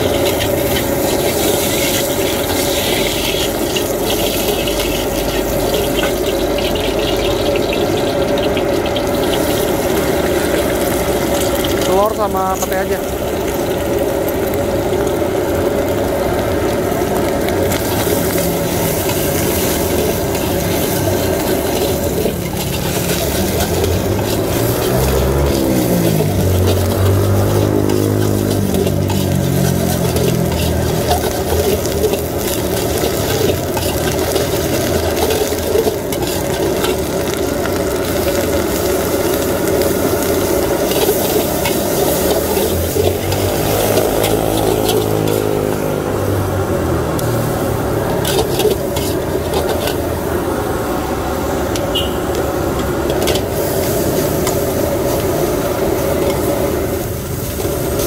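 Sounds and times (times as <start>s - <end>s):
metal spatula scraping wok: 0.0s - 13.5s, 17.3s - 46.1s, 47.4s - 50.6s, 51.4s - 58.0s
food sizzling: 0.0s - 58.0s
passing engine drone: 21.6s - 34.9s.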